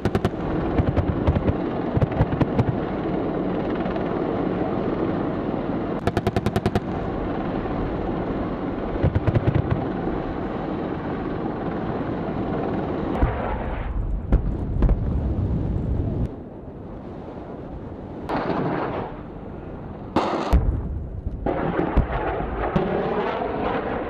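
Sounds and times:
steady rumble: 0.0s - 24.0s
automatic cannon fire: 18.3s - 19.3s, 20.2s - 24.0s.

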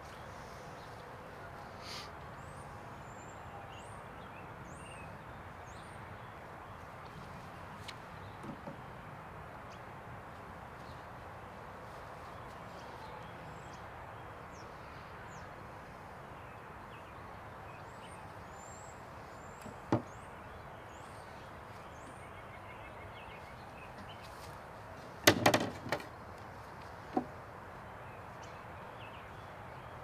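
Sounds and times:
tools knocking on wood: 19.7s - 20.1s, 25.3s - 26.1s, 27.1s - 27.3s.

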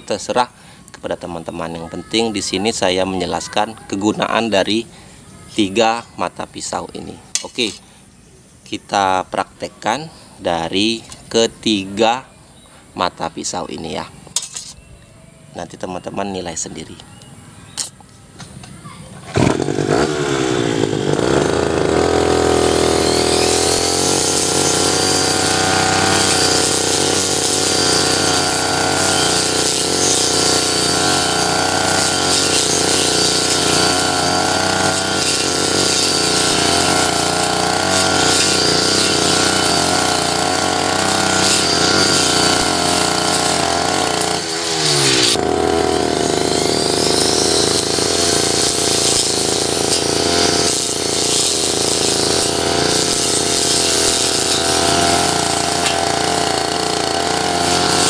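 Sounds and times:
metal blade cutting grass: 7.3s - 7.8s, 14.3s - 14.9s, 19.3s - 58.0s
brush cutter engine running: 19.3s - 58.0s.

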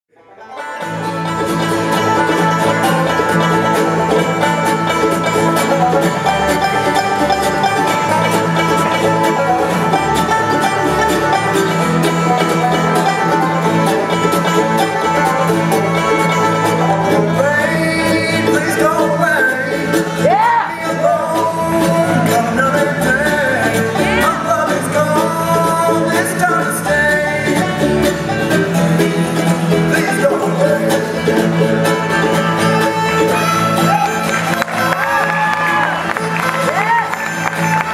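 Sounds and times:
bluegrass band playing: 0.1s - 37.9s
lead voice singing: 17.0s - 32.0s, 33.9s - 36.8s.

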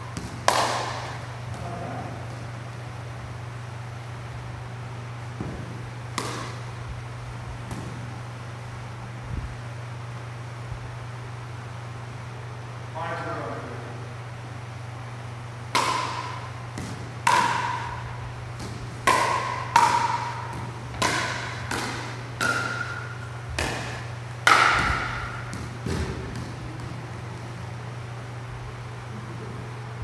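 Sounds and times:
steady low hum: 0.0s - 30.0s
ball bouncing: 0.1s - 1.7s, 5.4s - 6.8s, 7.6s - 8.1s, 15.7s - 27.5s
paddles striking plastic ball: 15.7s - 26.9s.

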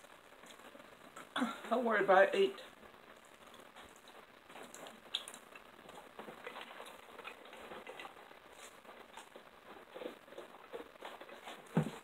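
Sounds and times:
chewing and mouth smacks: 3.2s - 11.6s.

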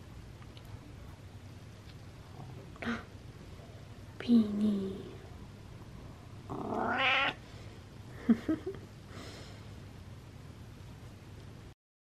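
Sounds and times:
cat meowing: 6.5s - 7.4s.

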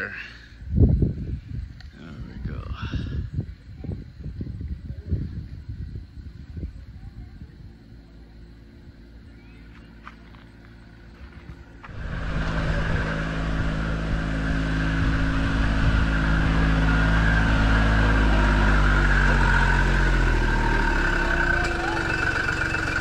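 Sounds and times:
ride train engine running: 7.4s - 23.0s.

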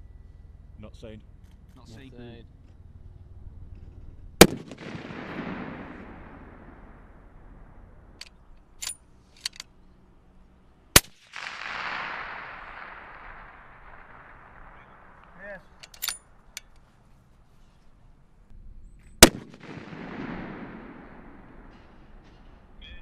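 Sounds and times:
rifle shots echoing: 4.4s - 9.0s, 10.9s - 16.7s, 19.2s - 22.8s.

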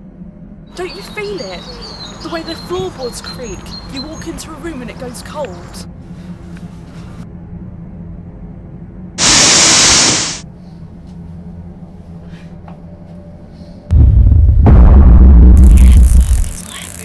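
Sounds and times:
low droning hum: 0.0s - 17.0s
burst of hiss: 9.2s - 10.4s
deep rumbling boom: 13.9s - 16.6s.

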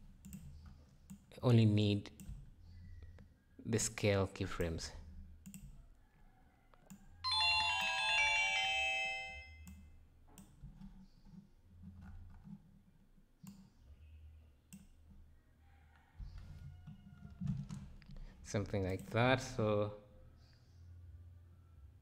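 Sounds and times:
electronic chime: 7.3s - 9.6s.

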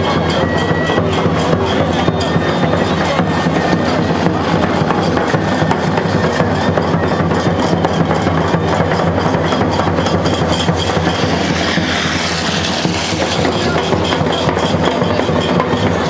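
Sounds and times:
background hubbub: 0.0s - 16.0s
rhythmic clacking percussion: 0.0s - 16.0s
small motorcycle passing: 10.3s - 15.3s.

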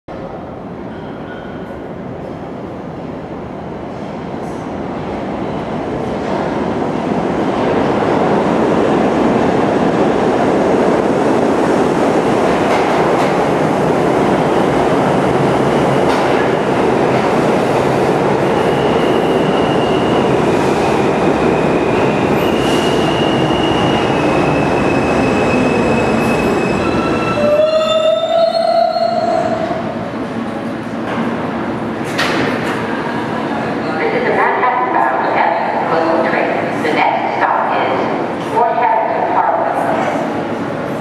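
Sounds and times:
train wheels rolling on rail: 3.9s - 27.4s.

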